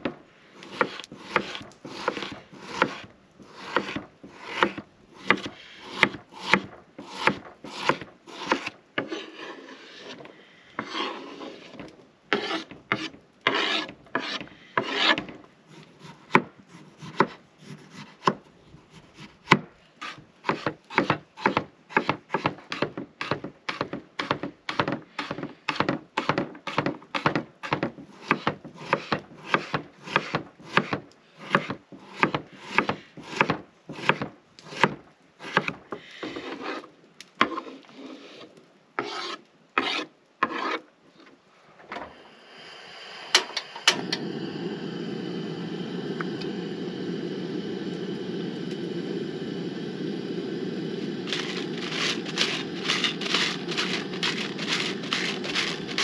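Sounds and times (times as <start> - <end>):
knife slicing strokes: 0.6 - 10.2, 50.8 - 56.0
knife chopping on wooden board: 0.7 - 9.1, 16.2 - 18.4, 20.5 - 35.8.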